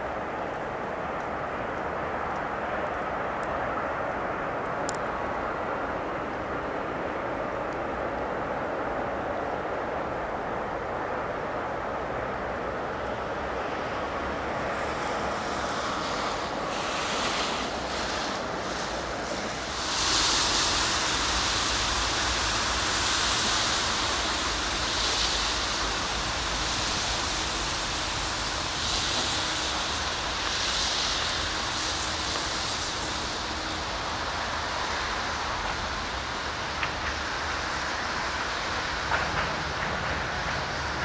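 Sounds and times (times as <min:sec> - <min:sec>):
locomotive low rumble: 0:00.0 - 0:41.0
rushing hiss of train: 0:00.0 - 0:41.0.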